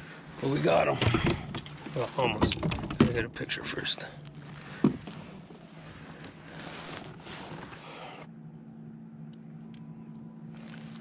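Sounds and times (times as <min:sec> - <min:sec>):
steady low hum: 0:00.0 - 0:11.0
rustling handling noise: 0:00.4 - 0:08.3, 0:10.5 - 0:11.0.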